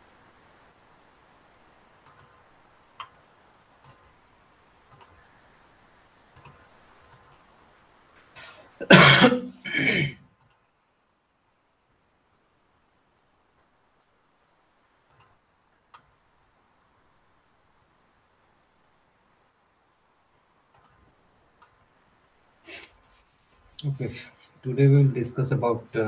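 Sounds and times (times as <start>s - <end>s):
computer mouse clicks: 2.0s - 2.4s, 3.0s - 3.2s, 3.8s - 4.1s, 4.9s - 5.2s, 6.4s - 7.4s, 10.4s - 10.6s, 15.1s - 16.1s, 20.7s - 21.8s
person coughing: 8.8s - 10.2s.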